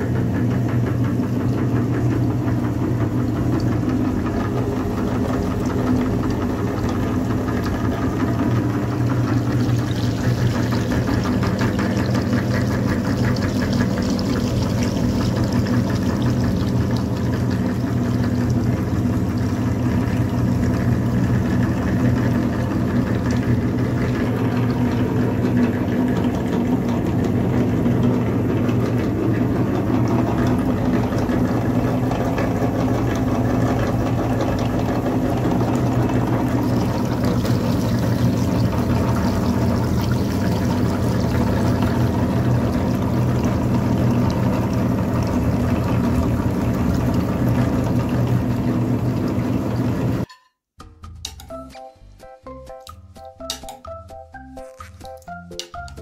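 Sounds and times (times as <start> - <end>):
meat grinder humming: 0.0 - 50.3.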